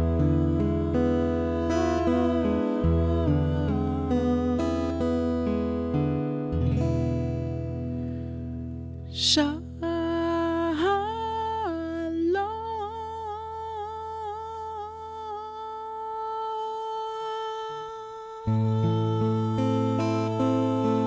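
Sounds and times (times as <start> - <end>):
acoustic guitar chord: 0.0 - 14.4.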